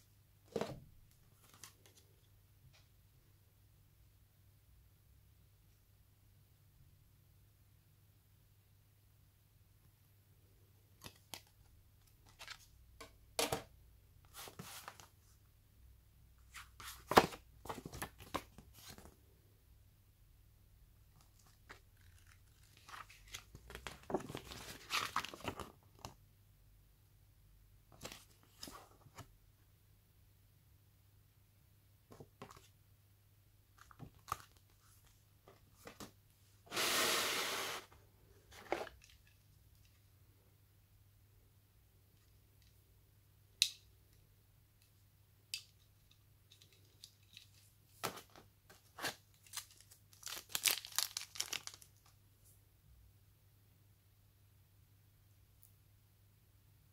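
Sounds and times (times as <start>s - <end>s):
paper pages rustling: 21.3s - 26.1s
plastic and paper rustling: 47.4s - 52.0s.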